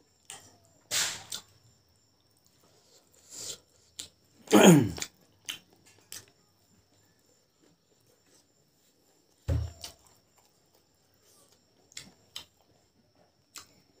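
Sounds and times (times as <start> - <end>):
short throat noise: 4.5 - 5.1
mouth smacks while eating: 5.0 - 6.3.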